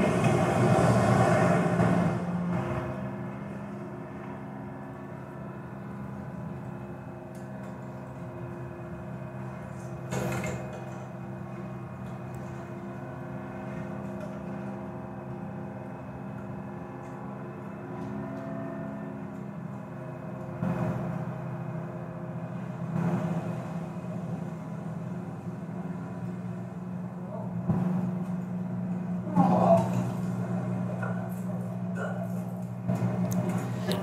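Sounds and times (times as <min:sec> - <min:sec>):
engine drone: 0:00.0 - 0:34.0.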